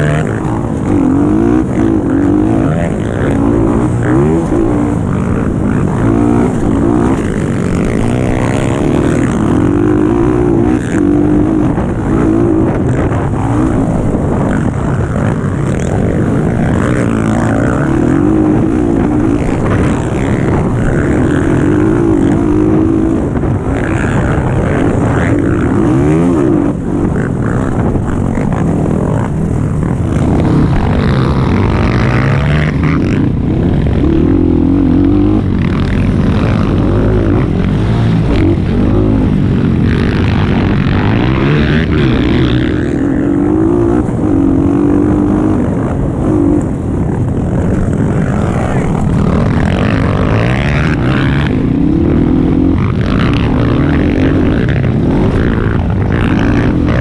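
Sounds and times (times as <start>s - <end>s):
dirt bike engine revving: 0.0s - 57.0s
wind noise on microphone: 0.0s - 57.0s.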